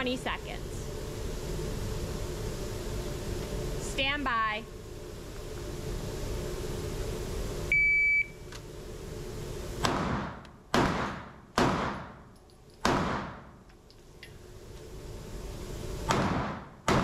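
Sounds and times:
shot timer beep: 7.7s - 8.4s
pistol shots echoing indoors: 9.8s - 12.2s, 12.8s - 13.5s.

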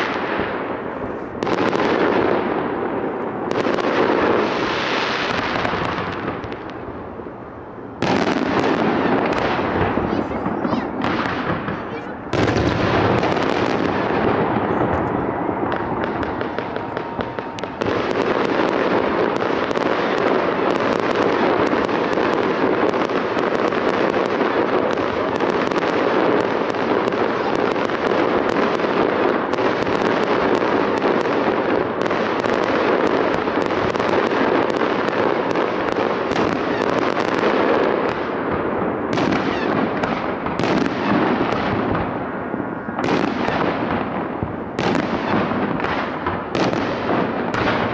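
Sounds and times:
firework shells bursting: 8.0s - 37.8s.

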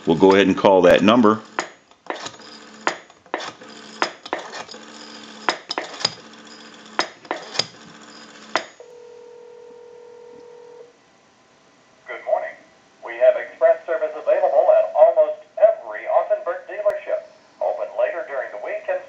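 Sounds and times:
telephone ringing tone: 2.4s - 2.8s, 3.6s - 4.0s, 4.7s - 5.5s, 6.1s - 11.0s.

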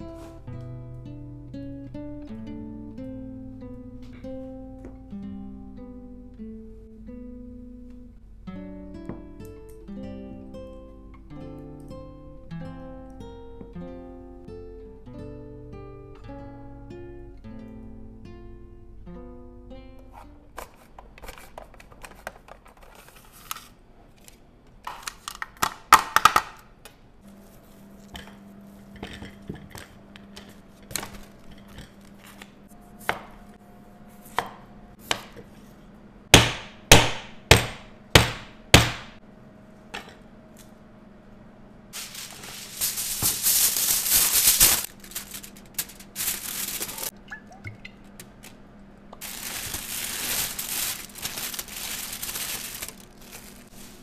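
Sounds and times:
plastic crinkling: 42.0s - 47.1s, 49.2s - 54.0s.

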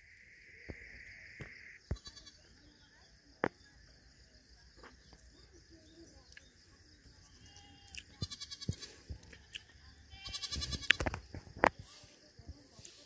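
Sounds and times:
goats bleating: 10.1s - 11.0s.

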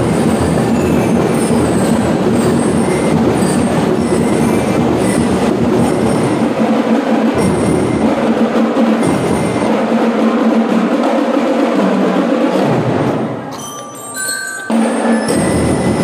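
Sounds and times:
snare and bass drums beating: 0.0s - 13.3s, 14.7s - 16.0s
bell-lyre notes: 13.5s - 16.0s.

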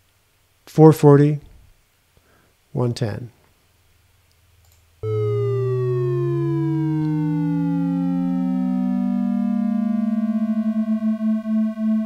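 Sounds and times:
falling synth tone: 5.0s - 12.0s
rising synth tone: 5.0s - 12.0s.

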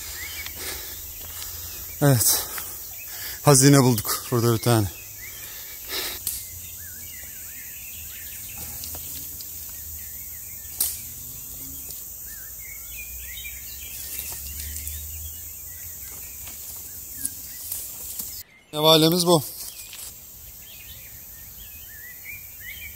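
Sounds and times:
small birds chirping: 0.0s - 22.9s
steady high hiss: 0.0s - 22.9s
stick snapping: 6.2s - 6.5s, 10.7s - 11.0s.

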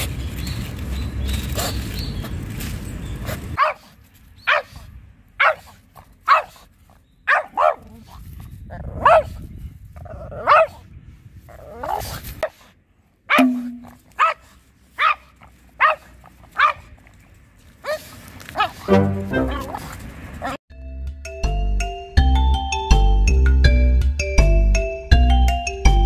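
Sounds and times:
dog barking: 3.6s - 3.9s, 4.5s - 4.8s, 5.4s - 6.6s, 7.3s - 8.1s, 9.0s - 9.4s, 10.4s - 10.8s, 14.2s - 16.9s, 17.8s - 20.6s.

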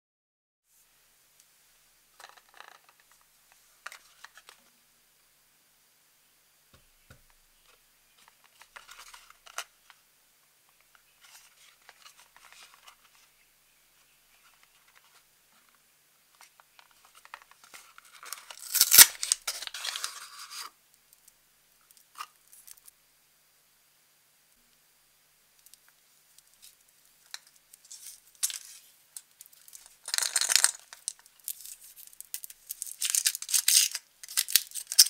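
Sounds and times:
card and paper ripping: 18.1s - 20.7s.

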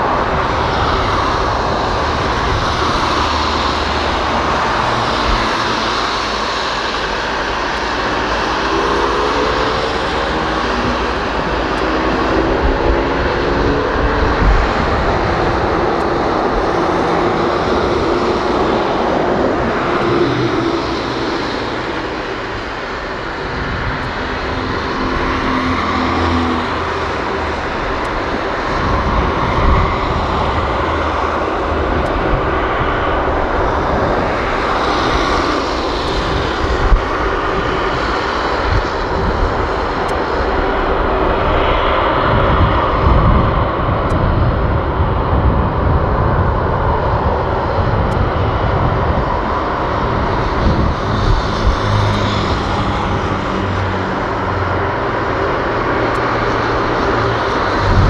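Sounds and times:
jet engines running: 0.0s - 58.0s.

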